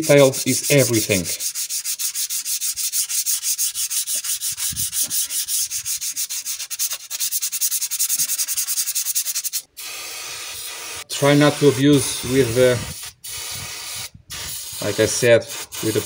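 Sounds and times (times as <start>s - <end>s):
abrasive pad scrubbing metal: 0.0s - 9.6s
aerosol can spraying: 0.1s - 16.0s.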